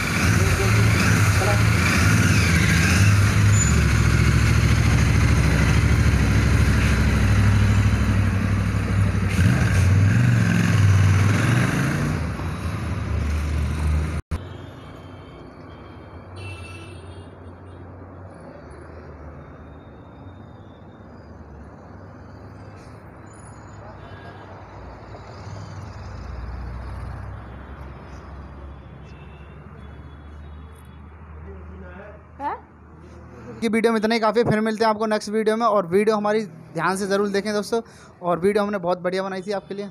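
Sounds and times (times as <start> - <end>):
motorcycle engine running: 0.0 - 8.4
street traffic noise: 0.0 - 39.9.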